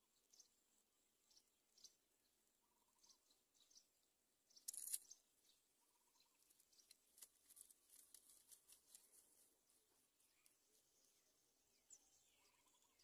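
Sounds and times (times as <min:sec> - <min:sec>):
dry grass crackling and rustling: 0:06.3 - 0:11.0.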